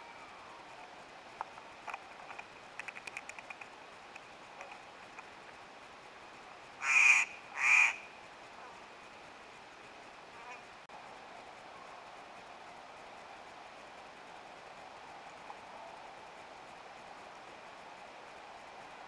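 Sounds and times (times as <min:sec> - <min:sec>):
faint ticks: 0:00.7 - 0:05.6, 0:12.4 - 0:19.0
jay harsh calls: 0:06.8 - 0:08.0.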